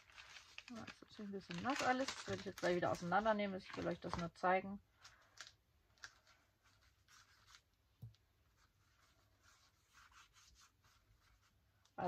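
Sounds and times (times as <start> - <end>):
paintbrush strokes on paper: 8.4 - 12.0.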